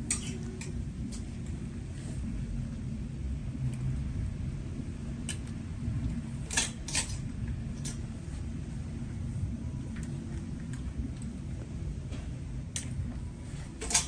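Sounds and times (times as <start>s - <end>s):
low hum: 0.0s - 14.0s
hangers clicking on metal rail: 6.5s - 7.2s, 13.8s - 14.0s.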